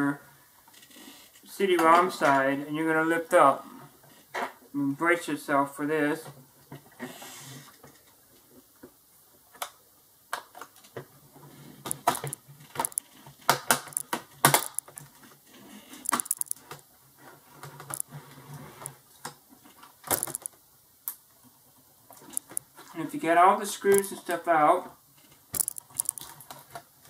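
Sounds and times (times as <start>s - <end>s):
plastic clips clicking and snapping: 11.9s - 15.0s, 16.0s - 16.8s, 17.8s - 18.0s, 20.1s - 20.5s, 25.6s - 26.4s
sharp irregular clicks: 11.9s - 15.0s, 16.0s - 16.8s, 17.8s - 18.1s, 20.1s - 21.2s, 22.2s - 22.6s, 23.9s - 24.1s, 25.6s - 26.4s.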